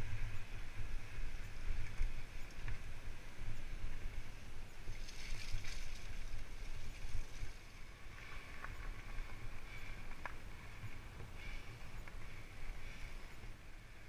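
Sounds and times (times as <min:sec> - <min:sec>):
bike tyres rumbling on dirt: 0:04.9 - 0:14.0.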